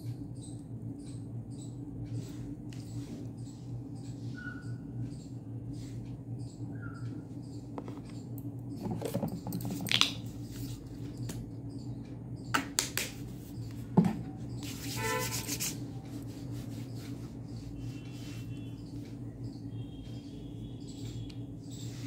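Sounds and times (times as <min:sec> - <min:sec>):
ceiling fan humming: 0:00.0 - 0:22.0
hands patting face: 0:12.5 - 0:13.3
hands rubbing together: 0:14.6 - 0:18.6.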